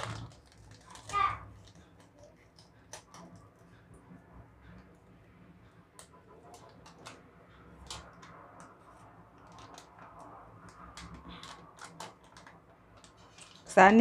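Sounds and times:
plastic sachet crinkling: 0:00.0 - 0:03.2, 0:09.4 - 0:13.7.

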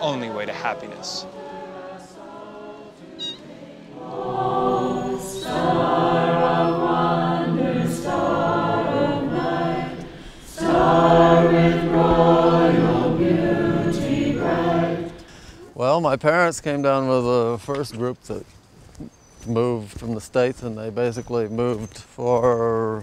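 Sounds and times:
choir singing slow chords: 0:00.0 - 0:15.7.

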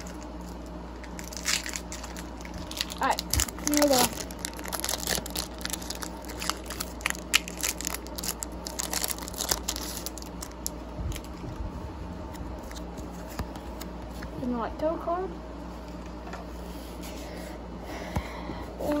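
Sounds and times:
foil wrapper crinkling: 0:00.0 - 0:11.5
foil wrapper tearing: 0:01.0 - 0:11.4.

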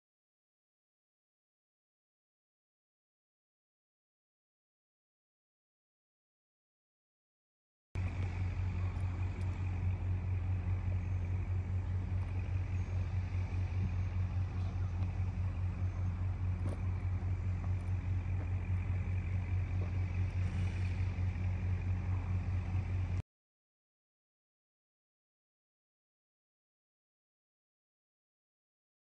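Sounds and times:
steady low hum: 0:08.0 - 0:23.2.

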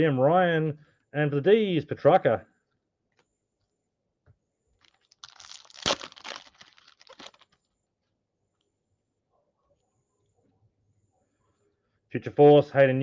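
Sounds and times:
foil pack tearing and crinkling: 0:04.8 - 0:07.6.

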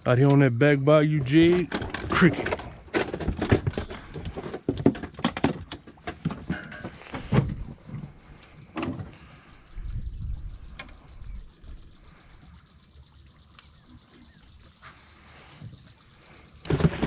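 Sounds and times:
knocks and clatters in metal boat: 0:01.2 - 0:09.3, 0:16.6 - 0:17.0.

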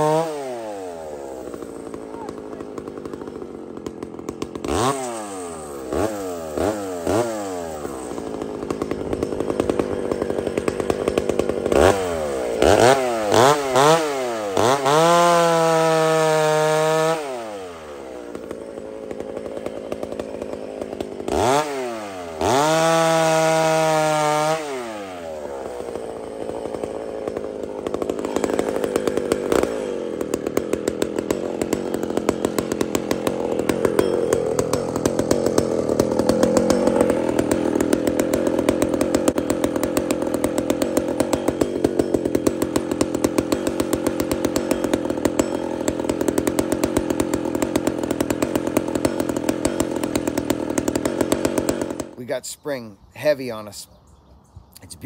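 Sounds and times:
chainsaw idling and revving: 0:00.0 - 0:53.9.

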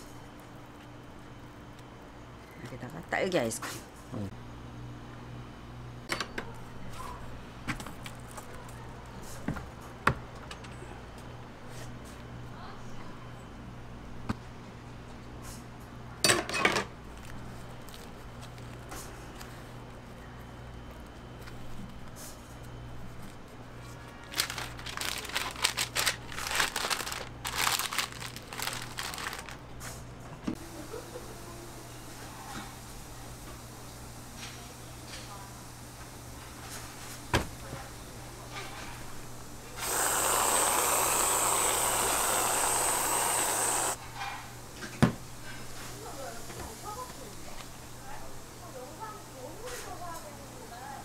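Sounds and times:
freezer low hum: 0:00.0 - 0:51.0
paper wrapper crinkling: 0:24.1 - 0:29.7.

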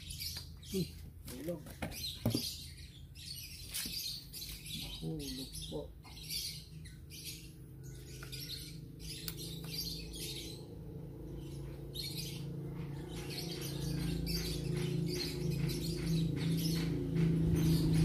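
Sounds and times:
birds chirping: 0:00.0 - 0:18.0
steady low hum: 0:04.8 - 0:18.0.

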